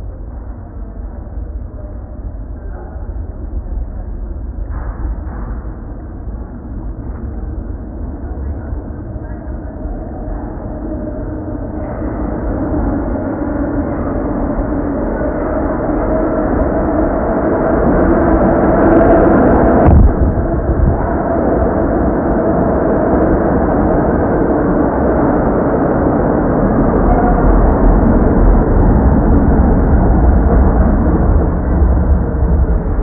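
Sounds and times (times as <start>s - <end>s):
subway train rumbling: 0.0s - 33.0s
sharp knock: 19.8s - 20.4s.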